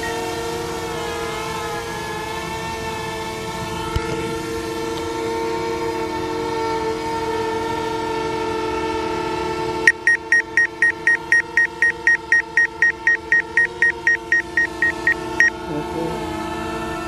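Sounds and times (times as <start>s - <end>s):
drone propellers humming: 0.0s - 17.0s
rapid high electronic beeping: 9.9s - 15.6s.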